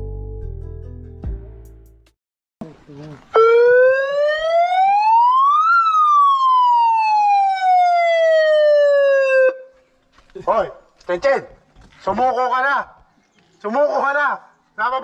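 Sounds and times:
wailing siren: 3.3 - 9.8.

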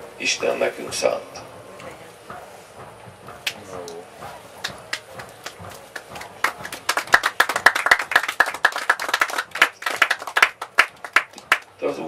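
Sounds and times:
audience clapping: 3.4 - 11.8.

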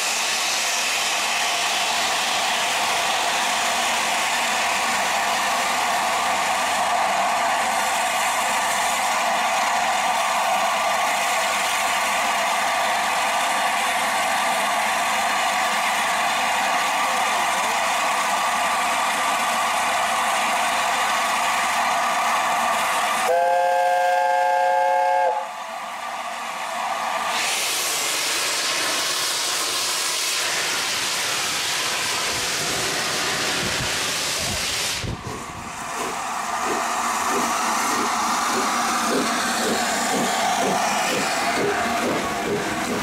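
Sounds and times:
loud rush of escaping steam: 0.0 - 23.6, 26.8 - 43.0
steady steam hiss: 0.0 - 23.6, 25.0 - 43.0
steam locomotive chime whistle: 23.2 - 25.6
slow regular beat: 35.9 - 43.0.

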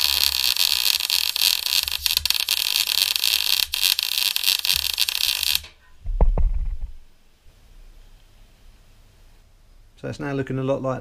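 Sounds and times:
welding arc crackling: 0.0 - 5.8
low thud: 6.0 - 7.1.

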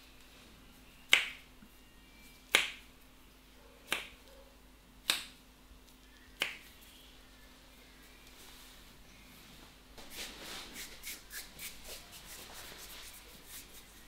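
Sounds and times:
hands snapping: 3.9 - 4.2, 5.1 - 5.4.

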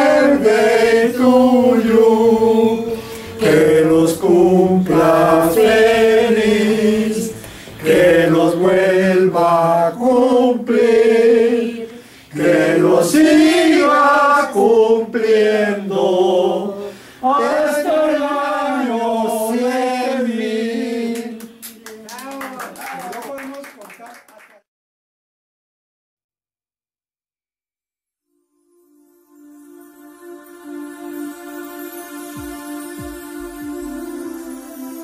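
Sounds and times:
group singing a birthday song: 0.0 - 21.9.

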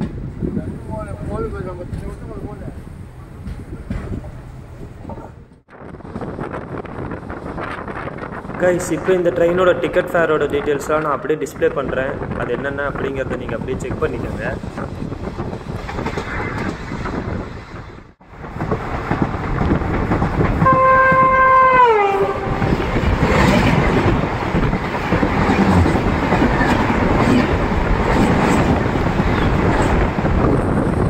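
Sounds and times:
train rumbling on rails: 0.0 - 31.0
train horn: 20.6 - 22.8.

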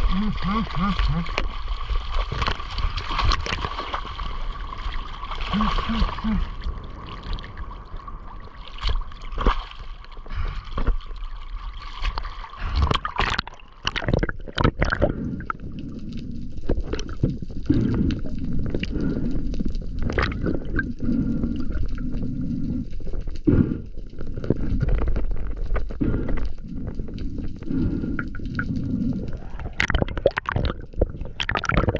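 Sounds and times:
water gurgling and sloshing: 0.0 - 31.9.

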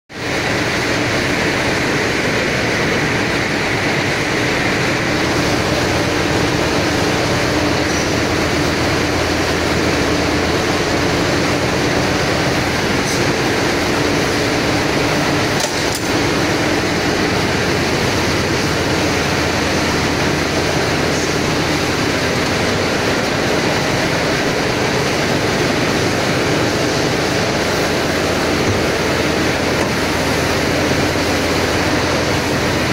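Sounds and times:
mill machinery running: 0.1 - 32.9.

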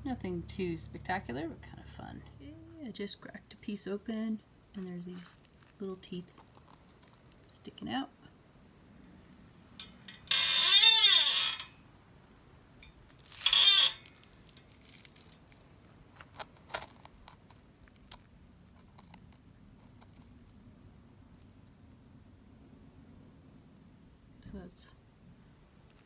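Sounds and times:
harsh squeals: 10.2 - 11.8, 13.2 - 15.3.

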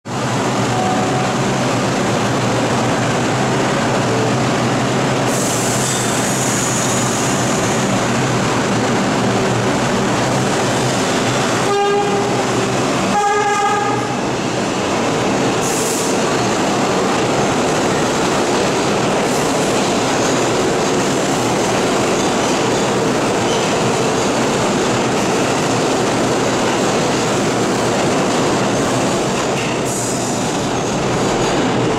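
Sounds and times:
train rumbling on rails: 0.1 - 31.9.

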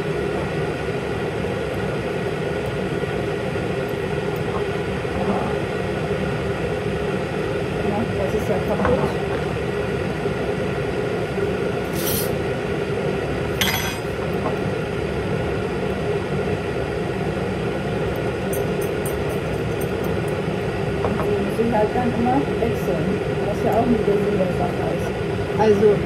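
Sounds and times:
glass bottles clinking: 13.6 - 14.1.

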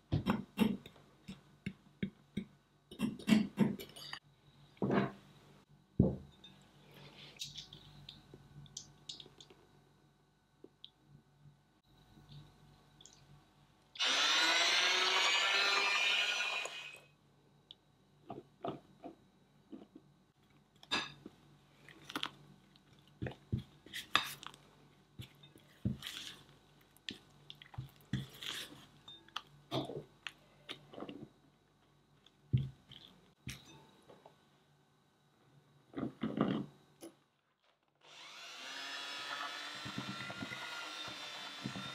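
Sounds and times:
electric hand mixer running: 14.0 - 17.0, 38.1 - 41.9.

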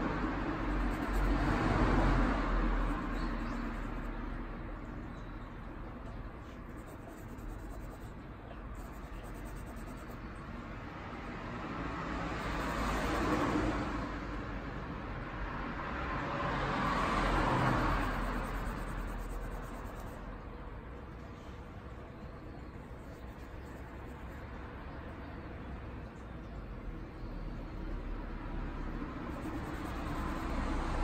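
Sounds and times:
vehicles passing by: 0.0 - 31.0.

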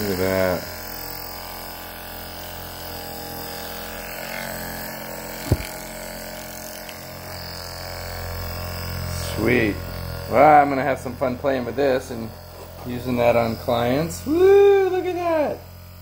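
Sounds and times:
massage gun motor buzz: 0.0 - 16.0
sharp thump: 5.4 - 5.8.

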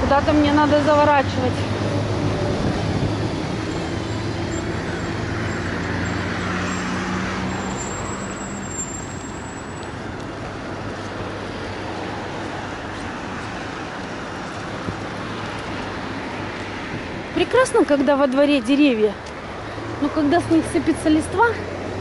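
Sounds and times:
vehicle engine drone: 0.0 - 16.8.

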